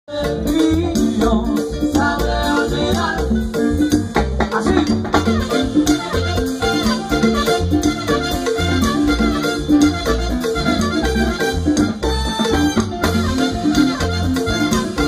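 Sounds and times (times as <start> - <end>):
bass line: 0.1 - 15.0
salsa band playing: 0.1 - 15.0
shaken percussion: 0.1 - 15.0
trumpet: 5.1 - 15.0.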